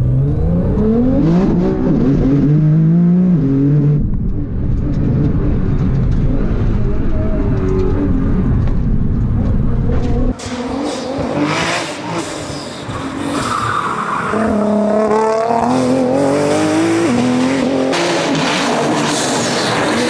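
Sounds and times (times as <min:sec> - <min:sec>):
car engine revving hard: 0:14.6 - 0:20.0.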